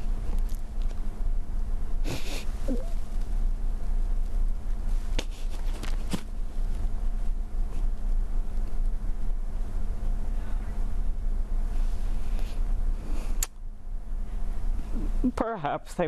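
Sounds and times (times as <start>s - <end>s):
steady low hum: 0.0s - 16.0s
woman sniffing: 2.0s - 2.8s.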